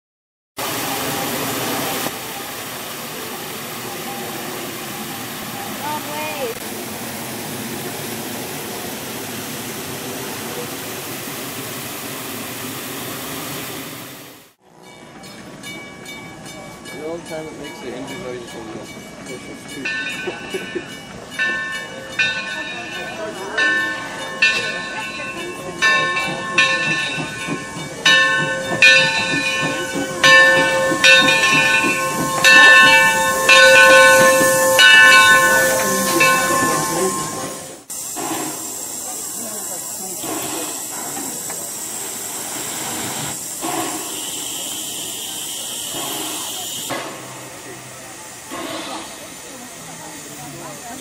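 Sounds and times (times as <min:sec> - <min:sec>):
fountain water splashing: 0:00.6 - 0:14.4
steam hissing: 0:00.6 - 0:14.6, 0:20.1 - 0:51.0
locomotive bell ringing: 0:14.6 - 0:37.9.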